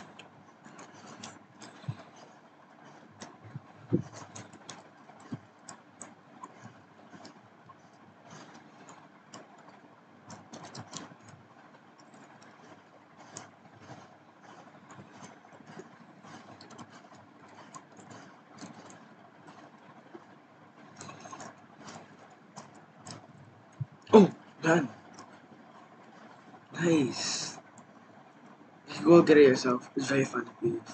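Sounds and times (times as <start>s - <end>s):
steady hiss: 26.8s - 27.6s.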